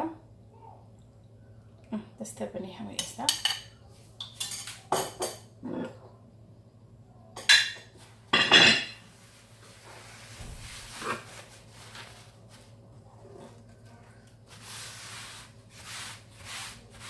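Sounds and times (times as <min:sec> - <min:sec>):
dishes clattering on a counter: 0:03.0 - 0:06.0, 0:07.4 - 0:09.0.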